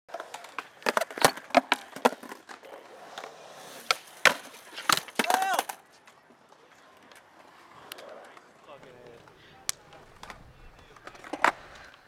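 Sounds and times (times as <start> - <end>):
skateboard clacking on concrete: 0.1 - 12.0
skateboard squealing scrape: 2.6 - 5.9, 9.3 - 12.0.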